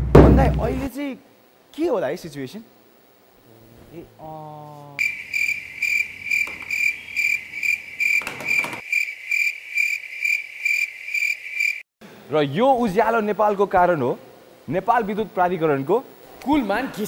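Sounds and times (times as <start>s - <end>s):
cricket chirping: 5.0s - 11.8s.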